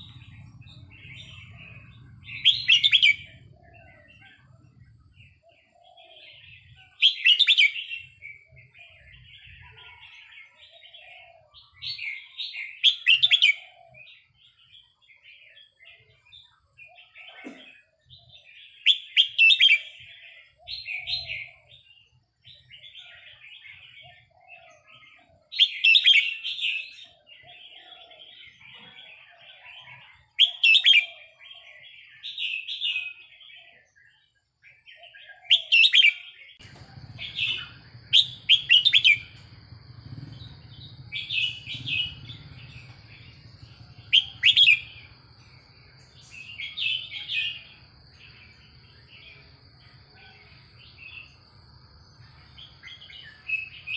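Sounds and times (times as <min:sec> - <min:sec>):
bird twittering: 0:00.0 - 0:16.2, 0:16.8 - 0:53.9
bird singing bubbly phrase: 0:37.2 - 0:39.4, 0:40.0 - 0:47.8.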